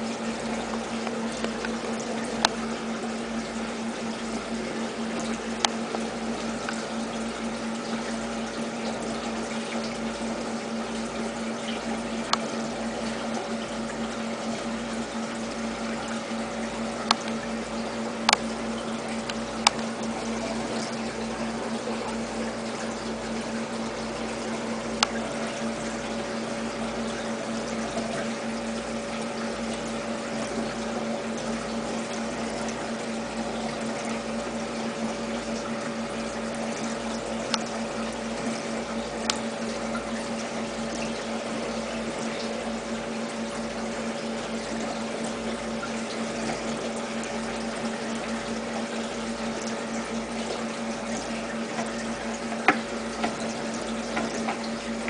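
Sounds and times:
small pump humming: 0.0 - 55.0.

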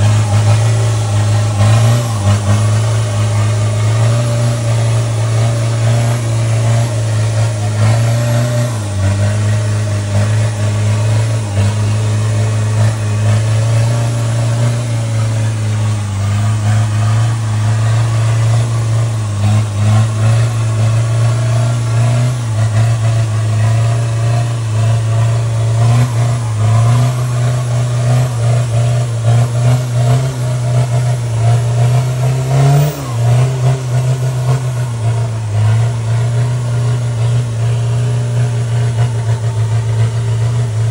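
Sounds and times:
truck engine running: 0.0 - 40.9.

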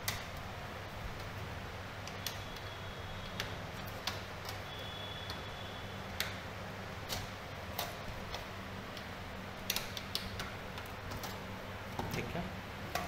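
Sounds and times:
cables and connectors clicking: 0.0 - 0.5, 2.0 - 5.5, 6.1 - 6.4, 7.0 - 13.0
steady low hum: 0.0 - 13.0.

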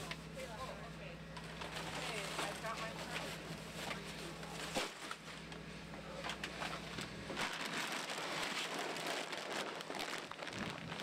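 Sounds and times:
plastic wrap crinkling: 7.3 - 11.0.

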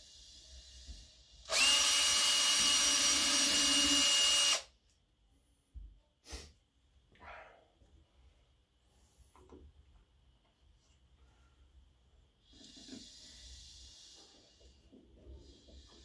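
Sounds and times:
cordless drill driving screw: 1.5 - 4.7.

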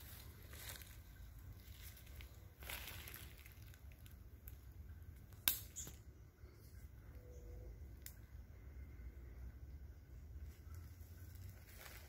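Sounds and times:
faint rustling and crackling: 0.0 - 4.6, 10.4 - 12.0
low steady hum: 0.0 - 12.0.

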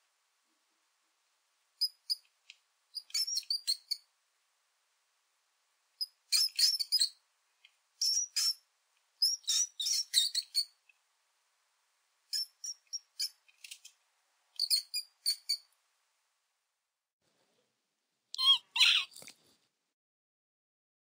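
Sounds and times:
mouse squeaks: 1.8 - 2.2, 2.9 - 4.1, 6.0 - 7.2, 8.0 - 8.6, 9.2 - 10.8, 12.3 - 13.9, 14.6 - 15.7, 18.4 - 19.2.

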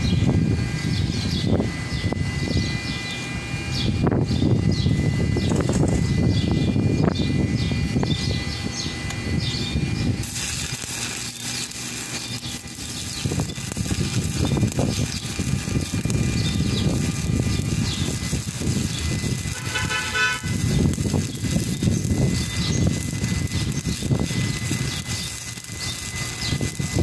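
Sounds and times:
welding arc crackling: 0.0 - 27.0
brief horn-like tone: 19.5 - 20.6.

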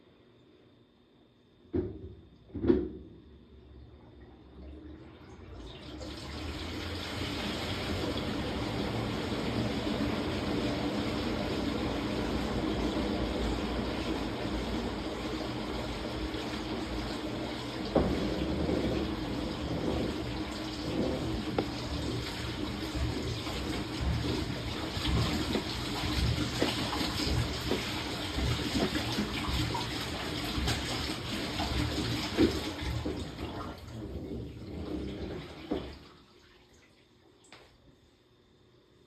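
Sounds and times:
low knocks in washing machine: 1.7 - 3.2, 15.8 - 36.0
washing machine water sloshing: 1.8 - 37.8.

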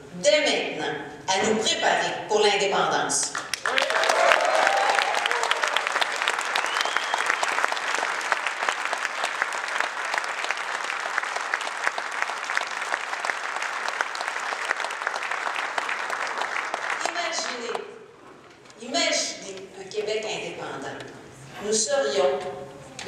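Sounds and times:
audience applauding: 3.4 - 17.8.

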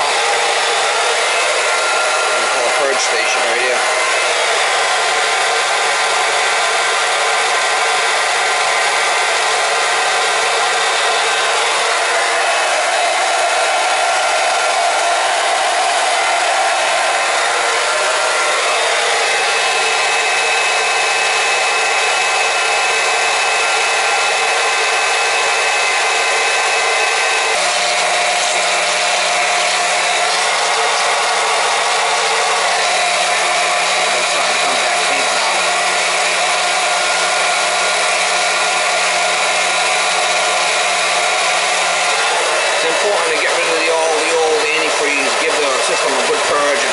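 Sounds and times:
electric pump running: 0.0 - 46.9.

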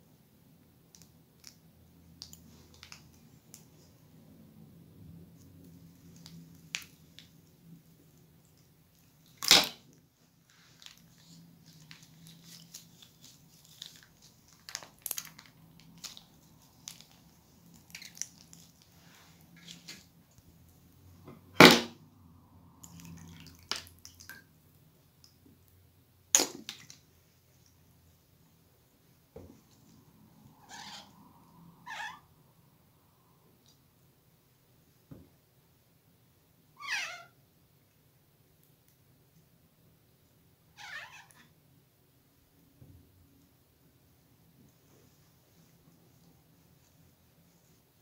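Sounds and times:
slime crackles and squelches: 5.3 - 20.6
sharp snapping sounds: 9.4 - 9.8.

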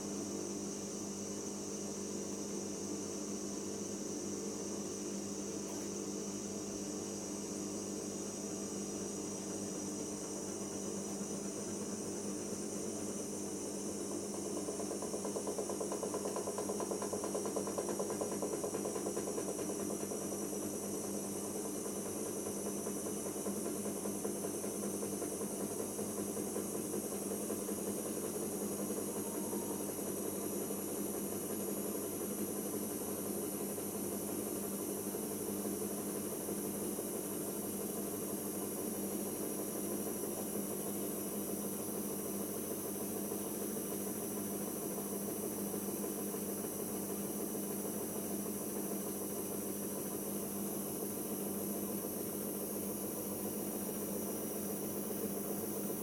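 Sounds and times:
washing machine spinning: 0.0 - 56.0.

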